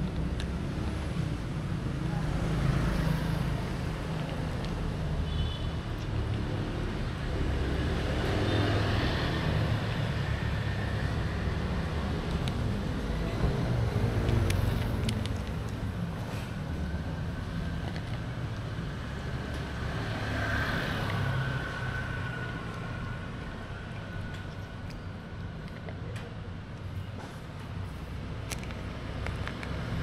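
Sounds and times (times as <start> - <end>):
street traffic rumble: 0.0 - 30.0.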